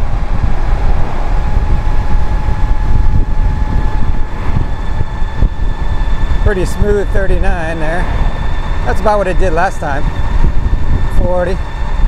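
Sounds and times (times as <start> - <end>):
electric motor whine: 0.0 - 12.0
wind buffeting microphone: 0.0 - 12.0.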